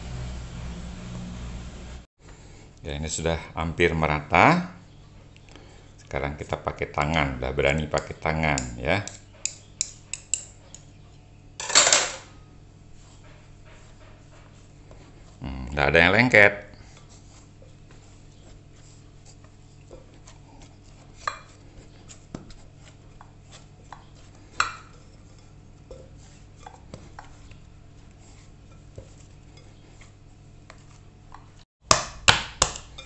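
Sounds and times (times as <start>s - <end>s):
hand squeezing dough: 12.3s - 31.6s.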